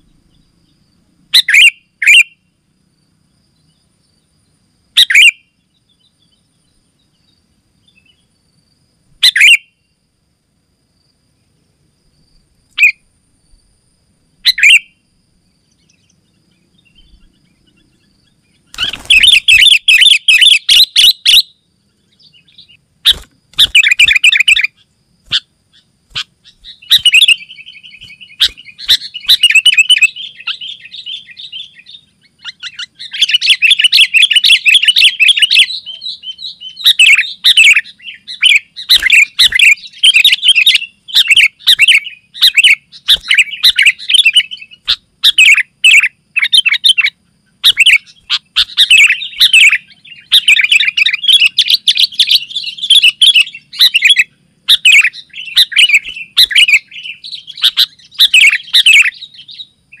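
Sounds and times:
bird singing chattering phrases: 0:01.3 - 0:02.4, 0:05.0 - 0:05.4, 0:09.2 - 0:09.6, 0:12.7 - 0:13.0, 0:14.4 - 0:14.9, 0:15.8 - 1:00.0.

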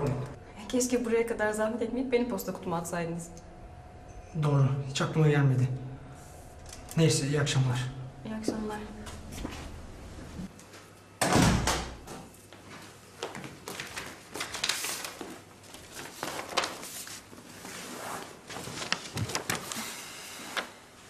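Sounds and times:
footsteps: 0:08.4 - 0:10.9
door shutting with thud: 0:11.2 - 0:12.0
paper letter rustling: 0:13.8 - 0:17.5, 0:18.5 - 0:20.0.

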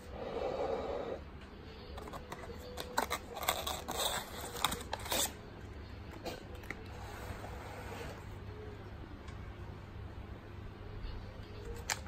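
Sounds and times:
paper packaging crinkling: 0:02.0 - 0:05.4.

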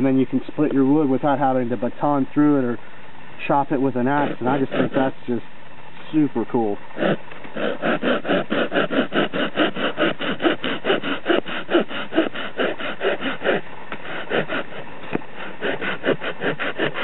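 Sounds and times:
hand saw cutting a branch: 0:03.5 - 0:05.2, 0:07.0 - 0:17.0.

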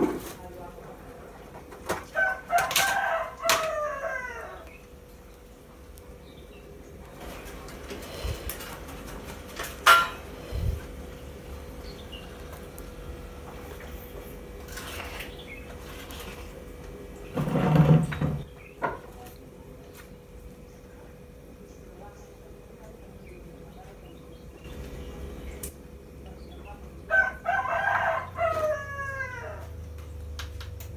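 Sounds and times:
faint steady hum: 0:00.4 - 0:30.9
cookware clattering: 0:09.6 - 0:10.3
metal utensil clank: 0:09.6 - 0:10.3.

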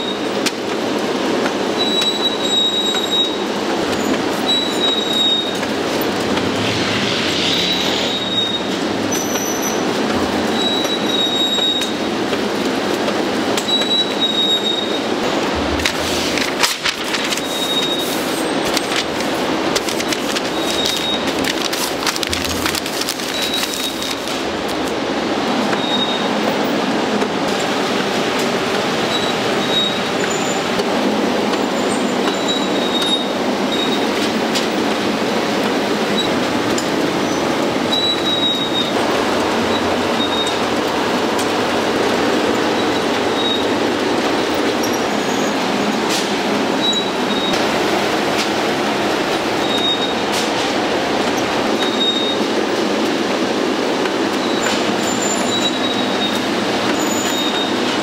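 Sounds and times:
steady mechanical running noise: 0:00.0 - 0:58.0
short high squeaks: 0:04.5 - 0:09.9.

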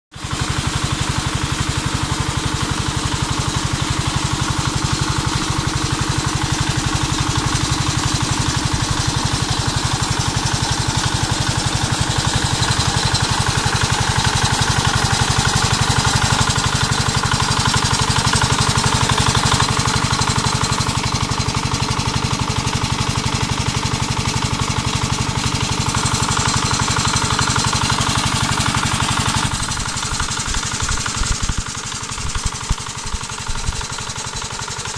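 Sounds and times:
diesel engine chugging: 0:00.2 - 0:34.9
water gushing from pipe: 0:25.6 - 0:34.9.

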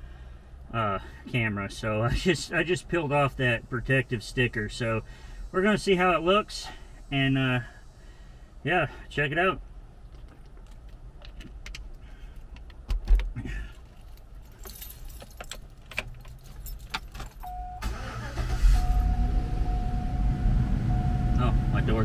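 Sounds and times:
keys jangling and clicking: 0:13.7 - 0:17.6
truck engine starting and running: 0:17.3 - 0:22.0
door-open warning chime: 0:17.4 - 0:18.0, 0:18.6 - 0:21.9.

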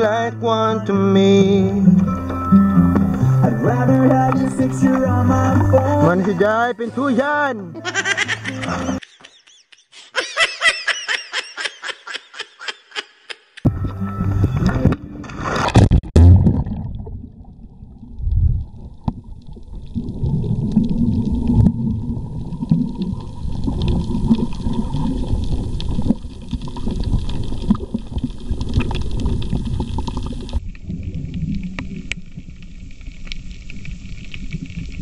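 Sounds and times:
muffled underwater rumble: 0:13.7 - 0:35.0
loud splash into water: 0:15.2 - 0:17.3.

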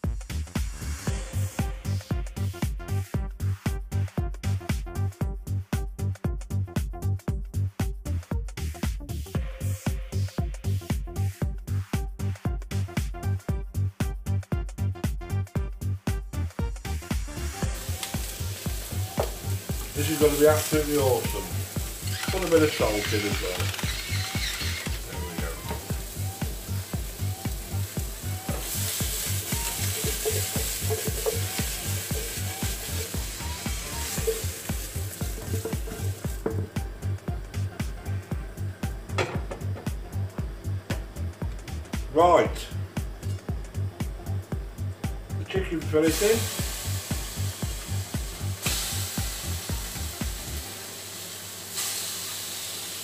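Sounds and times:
music with steady beat: 0:00.0 - 0:52.2
vegetables sizzling in oil: 0:16.8 - 0:37.9, 0:45.9 - 0:53.0.

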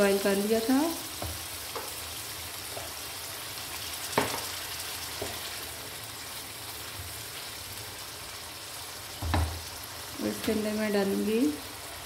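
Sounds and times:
lentils simmering and sizzling: 0:00.0 - 0:12.0
wooden spoon knocking on pan: 0:01.2 - 0:02.0, 0:04.1 - 0:04.5, 0:09.2 - 0:09.6.

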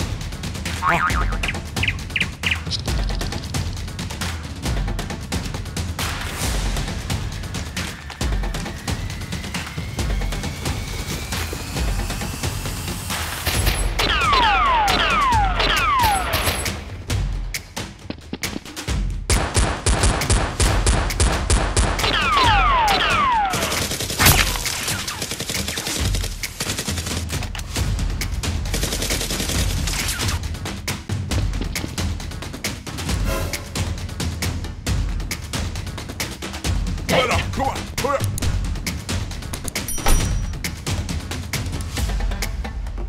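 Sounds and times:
background music: 0:00.0 - 0:43.0
deep bass beat: 0:00.8 - 0:03.2
rapid gunfire: 0:19.3 - 0:27.5, 0:28.7 - 0:30.4.

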